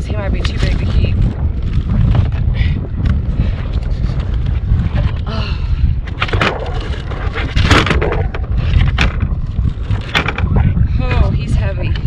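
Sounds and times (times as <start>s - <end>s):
wind buffeting microphone: 0.0s - 12.0s
rustling scrape: 6.2s - 11.3s.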